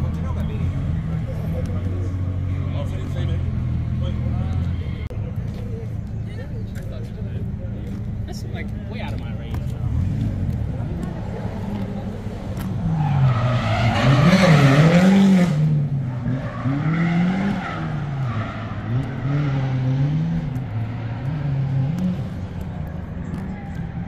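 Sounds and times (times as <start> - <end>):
car engine revving: 9.1 - 24.0
tyres screeching: 11.1 - 22.3.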